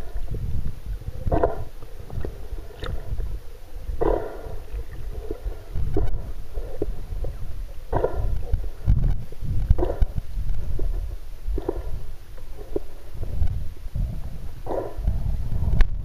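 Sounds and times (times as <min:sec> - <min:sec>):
gurgling bubble bursts: 0:00.0 - 0:12.0
underwater churning rumble: 0:00.0 - 0:16.0.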